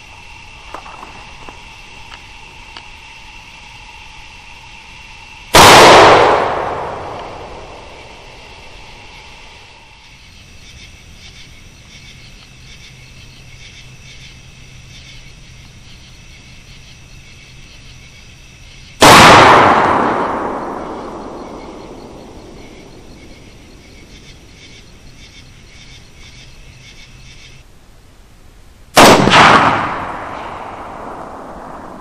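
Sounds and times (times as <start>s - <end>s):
rifle shot echoing: 5.6s - 8.3s, 19.0s - 22.9s, 29.0s - 32.0s.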